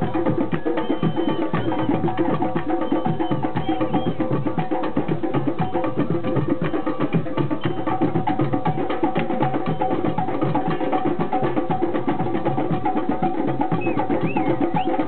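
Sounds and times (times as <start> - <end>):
hand drums playing: 0.0 - 15.0.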